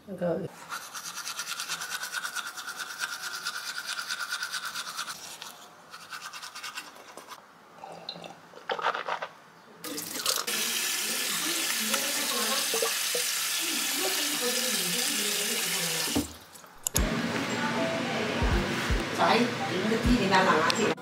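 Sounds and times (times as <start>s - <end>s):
toothbrush scrubbing teeth: 0.6s - 7.4s
tap water splashing in sink: 11.7s - 14.5s.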